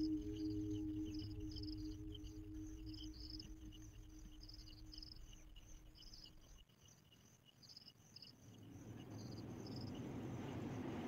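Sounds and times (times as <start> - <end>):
low steady hum: 0.0 - 6.6
crickets chirping: 0.0 - 11.0.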